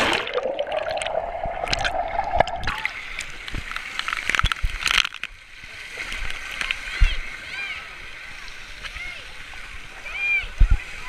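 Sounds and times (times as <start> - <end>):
water splashing against camera: 0.0 - 5.4
steady muffled tone: 0.2 - 2.9.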